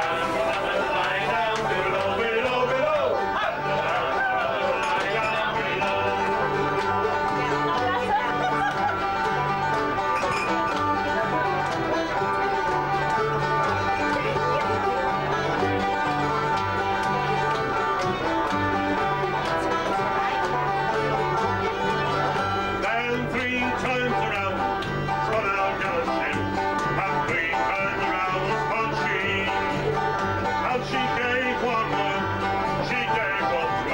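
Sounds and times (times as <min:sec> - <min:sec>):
acoustic guitar: 0:00.0 - 0:33.9
banjo: 0:00.0 - 0:33.9
bass notes: 0:00.0 - 0:33.9
fiddle: 0:00.0 - 0:33.9.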